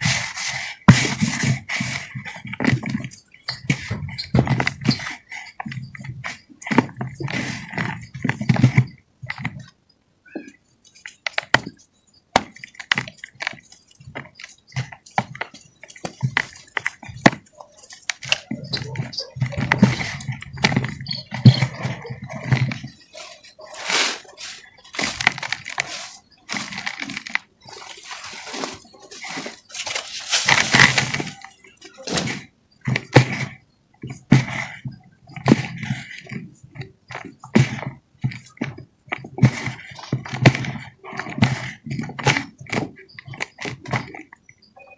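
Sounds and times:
dirt clods cracking: 0:12.4 - 0:44.3
dry dirt crunching by hand: 0:12.4 - 0:44.3.

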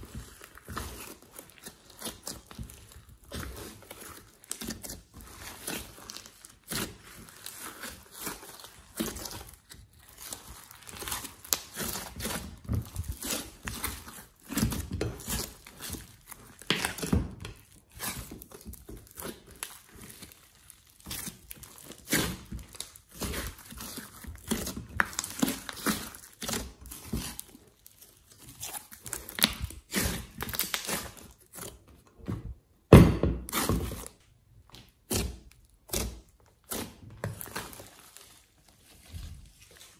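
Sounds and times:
slime squishing and popping: 0:00.0 - 0:31.8
heavy thud of slime: 0:32.9 - 0:33.8.

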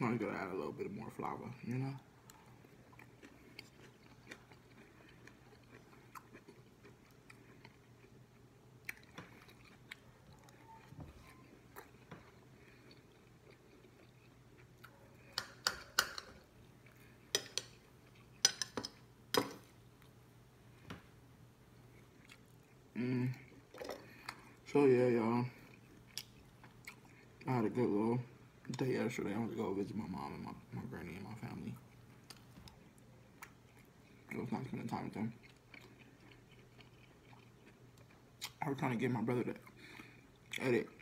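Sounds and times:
person chewing: 0:02.1 - 0:20.2, 0:21.7 - 0:24.6, 0:25.5 - 0:27.5, 0:31.8 - 0:38.6.

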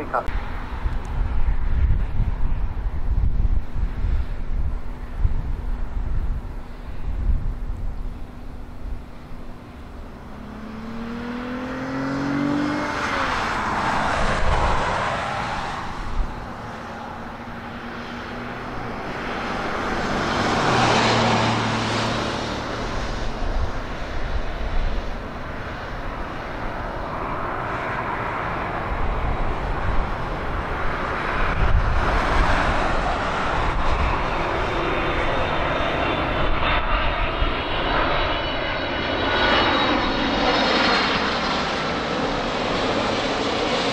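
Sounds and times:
high engine whine: 0:00.0 - 0:43.9
jet engine noise: 0:00.0 - 0:43.9.

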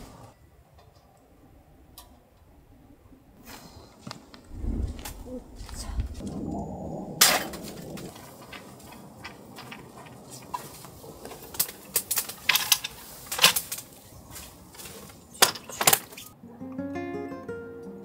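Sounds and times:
camping gear clicks and knocks: 0:07.4 - 0:16.4.

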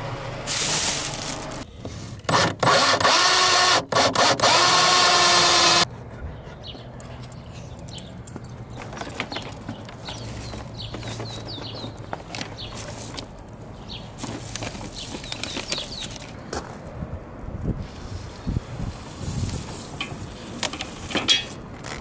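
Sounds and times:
power drill boring through wood: 0:02.3 - 0:05.8.

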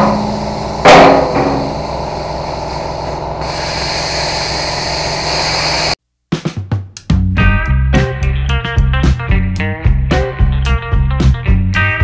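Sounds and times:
hissing blasts of air: 0:00.0 - 0:06.0
low machine hum: 0:00.0 - 0:06.0
plasma cutter hissing: 0:00.0 - 0:06.0.

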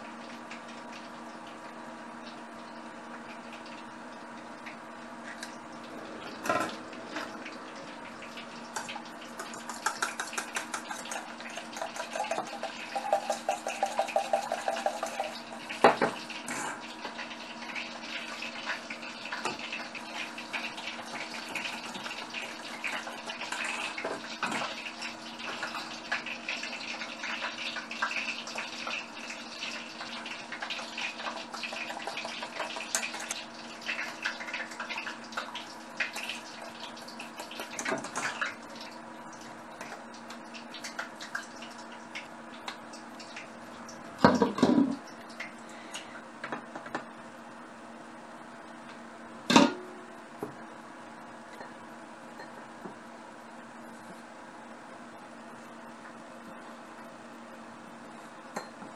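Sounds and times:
whisk beating eggs in metal bowl: 0:09.3 - 0:15.2.

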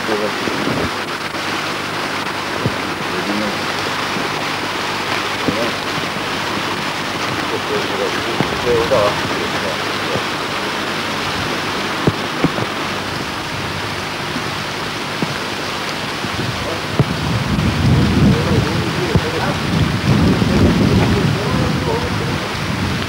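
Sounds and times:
heavy low rumble: 0:00.0 - 0:23.0
rain falling: 0:00.0 - 0:23.0.

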